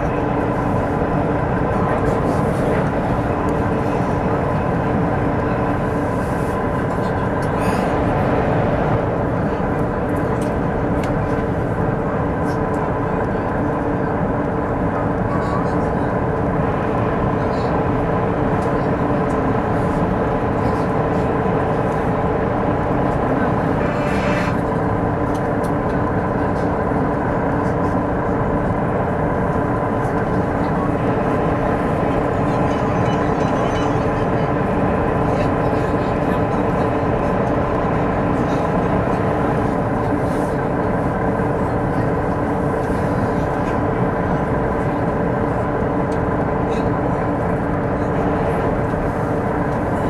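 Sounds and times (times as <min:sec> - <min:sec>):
train cabin running noise: 0:00.0 - 0:50.0.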